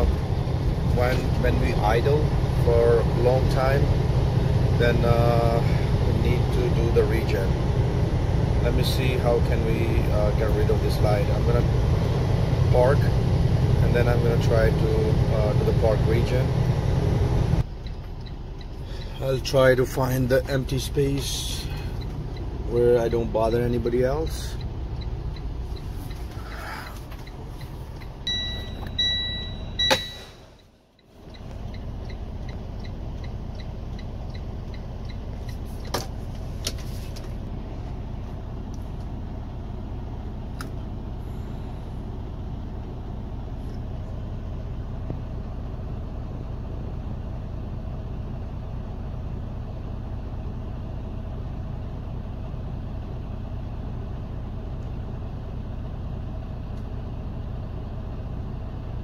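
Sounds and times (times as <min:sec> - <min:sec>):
diesel engine idling: 0:00.0 - 0:59.0
faint dashboard beep: 0:24.2 - 0:36.0.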